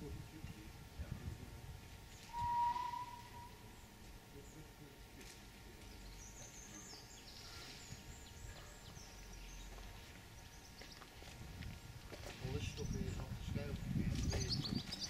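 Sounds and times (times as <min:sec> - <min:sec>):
short high bird chirps: 0:02.2 - 0:03.6.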